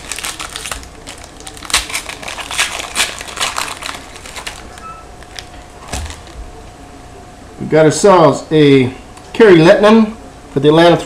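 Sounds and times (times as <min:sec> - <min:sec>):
wrapper tearing and crinkling: 0:00.0 - 0:06.4.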